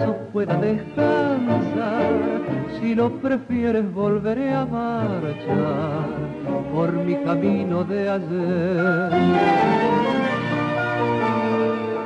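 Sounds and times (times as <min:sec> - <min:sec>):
person singing with vibrato: 0:00.0 - 0:10.1
tango accompaniment chord: 0:00.0 - 0:12.0.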